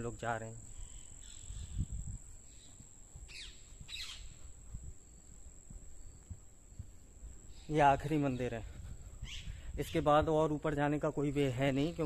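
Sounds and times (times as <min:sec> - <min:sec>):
falling bird calls: 0:00.0 - 0:04.6.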